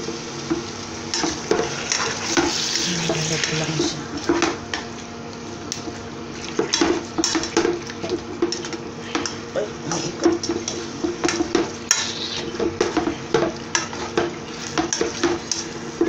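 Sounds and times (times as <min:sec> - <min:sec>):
steady low hum: 0:00.0 - 0:16.0
spatula scraping a pan: 0:08.4 - 0:15.9.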